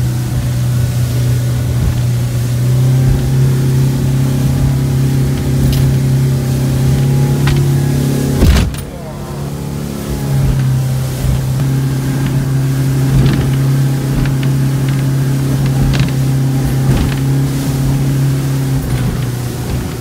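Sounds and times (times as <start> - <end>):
boat engine running: 0.0 - 20.0
sharp knocks: 7.4 - 7.8, 8.4 - 8.9.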